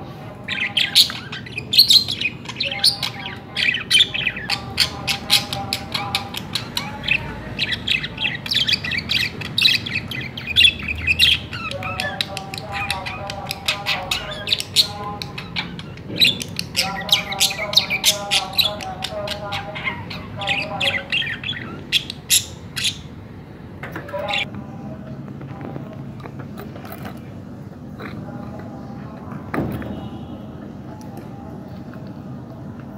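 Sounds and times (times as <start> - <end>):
budgerigars chattering: 0.4 - 23.2.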